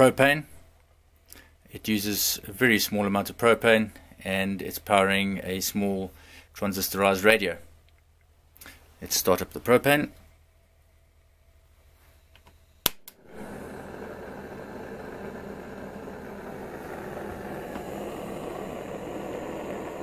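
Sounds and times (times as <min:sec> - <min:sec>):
propane burner hissing: 0:13.2 - 0:20.0.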